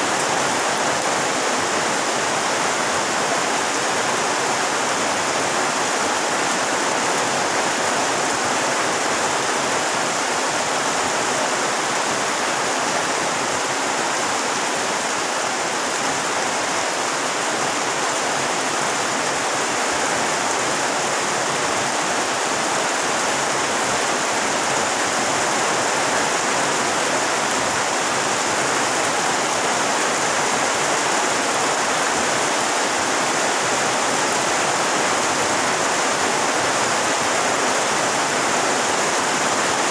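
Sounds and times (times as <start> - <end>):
heavy rain splashing on water: 0.0 - 39.9.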